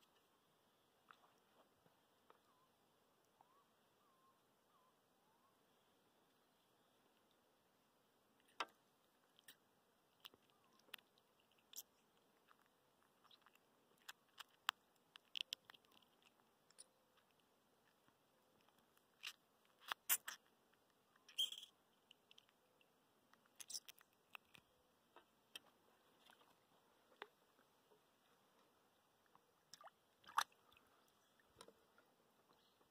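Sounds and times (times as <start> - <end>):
hands handling fish and hook: 8.4 - 27.6.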